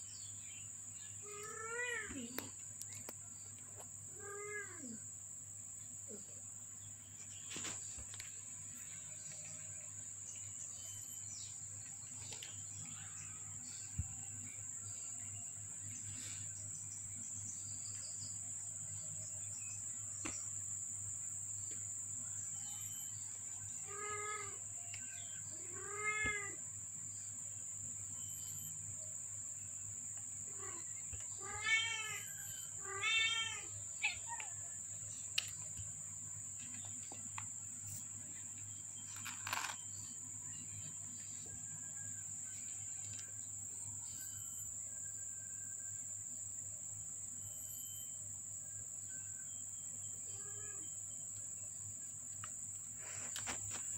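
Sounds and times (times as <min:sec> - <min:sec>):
kittens mewing: 0:25.6 - 0:26.6, 0:30.5 - 0:34.6.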